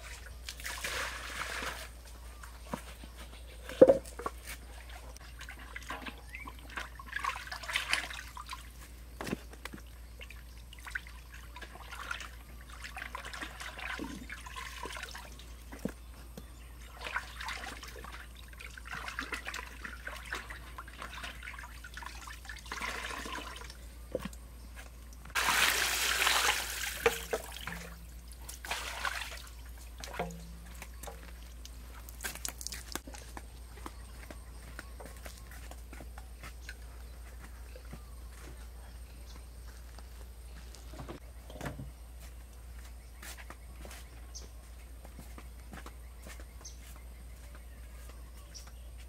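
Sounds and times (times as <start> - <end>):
water splashing in metal basin: 5.2 - 8.8, 10.2 - 15.5, 16.9 - 23.8, 25.4 - 33.0.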